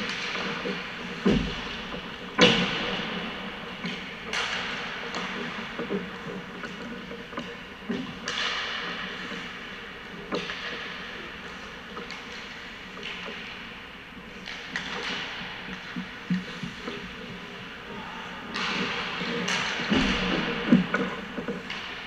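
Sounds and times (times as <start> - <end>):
sticks striking pucks: 0.0 - 1.8, 3.8 - 6.2, 7.4 - 9.5, 14.3 - 17.1, 18.4 - 22.0.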